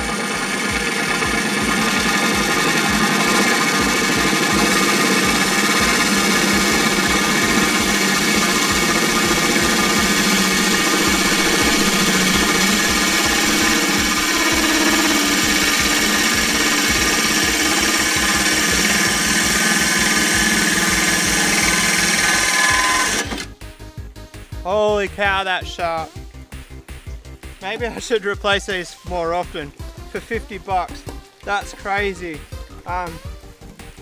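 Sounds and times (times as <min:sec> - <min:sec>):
hole saw grinding glass: 0:00.0 - 0:23.5
drill motor whine: 0:00.0 - 0:23.6.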